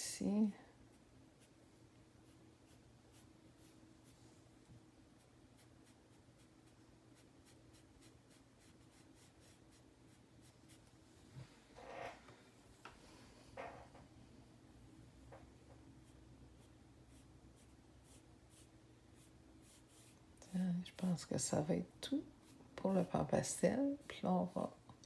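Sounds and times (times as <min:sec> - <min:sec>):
faint steady hum: 0:00.0 - 0:25.0
sponge applicator rubbing paper: 0:16.0 - 0:20.2.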